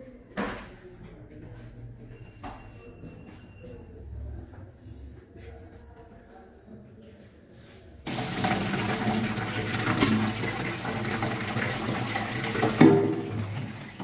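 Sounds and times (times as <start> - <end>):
tray knocking sink: 8.1 - 13.9
tap water running hard: 8.1 - 14.0.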